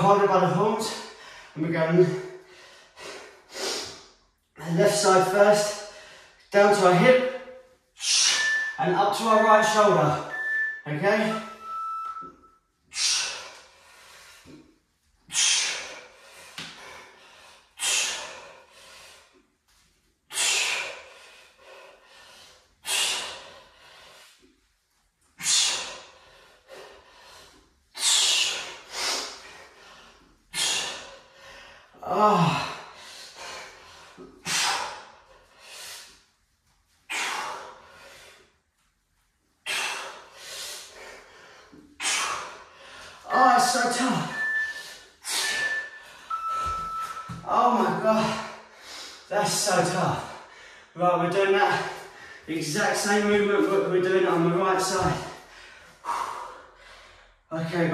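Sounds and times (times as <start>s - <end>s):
man breathing out hard: 25.4s - 36.2s
man grunting: 32.0s - 32.8s.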